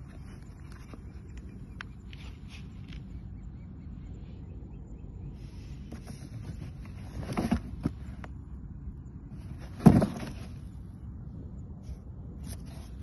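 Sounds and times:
low steady rumble: 0:00.0 - 0:13.0
cardboard box handled on concrete: 0:05.9 - 0:08.3, 0:09.4 - 0:10.7.

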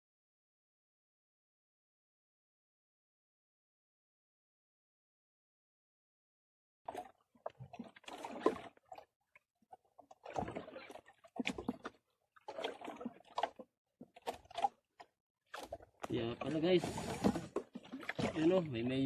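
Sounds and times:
water slapping against boat hull: 0:06.9 - 0:19.0.

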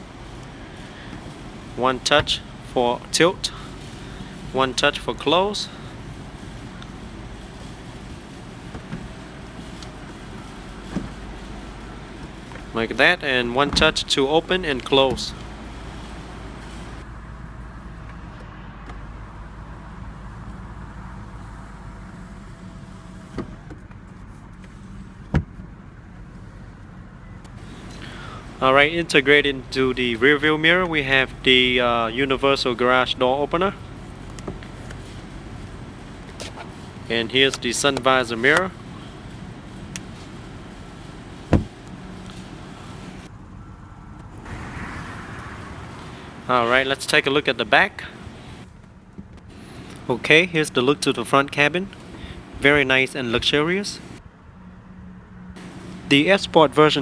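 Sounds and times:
car engine idling: 0:00.0 - 0:18.2
sunroof motor whine: 0:03.6 - 0:13.0
sun visor knock: 0:41.5 - 0:41.8.

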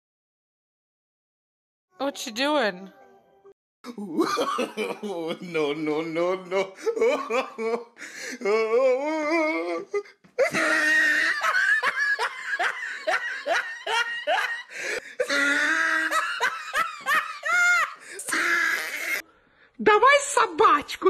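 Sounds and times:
person laughing hard: 0:03.9 - 0:09.8, 0:10.4 - 0:19.2.

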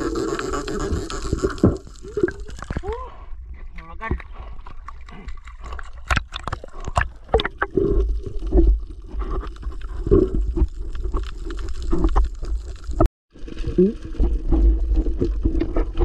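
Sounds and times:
underwater gurgling: 0:00.0 - 0:02.9, 0:04.4 - 0:16.0
water splashing: 0:00.0 - 0:03.0.

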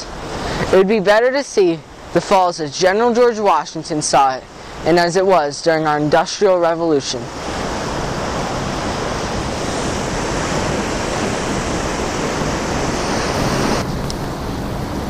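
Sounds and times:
waterfall rushing: 0:00.0 - 0:15.0
wind on microphone: 0:07.3 - 0:15.0.

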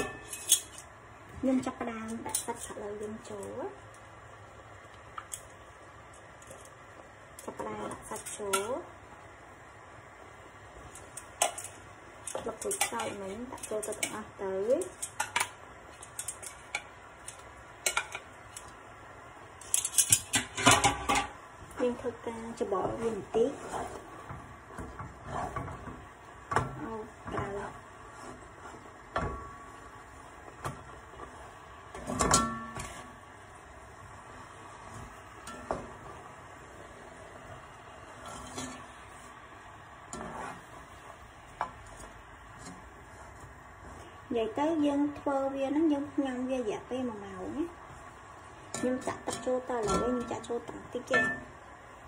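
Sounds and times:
metal tongs clinking against pot: 0:00.0 - 0:00.9, 0:11.2 - 0:18.7, 0:19.6 - 0:21.4, 0:48.7 - 0:51.5
wooden spatula scraping pot: 0:10.8 - 0:18.3, 0:19.7 - 0:33.3, 0:34.3 - 0:46.4.

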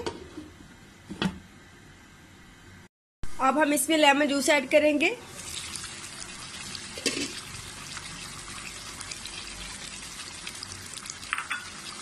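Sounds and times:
curry simmering and bubbling: 0:05.4 - 0:12.0.

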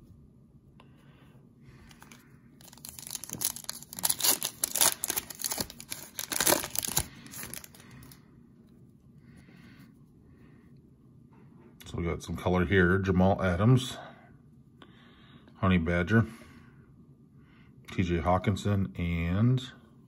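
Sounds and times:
foil wrapper ripping and crinkling: 0:01.9 - 0:08.2.

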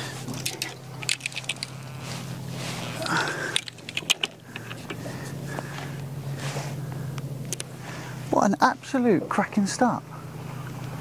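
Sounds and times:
fishing gear clicking and rattling: 0:00.0 - 0:02.0, 0:02.8 - 0:06.1
steady low hum: 0:00.0 - 0:11.0.

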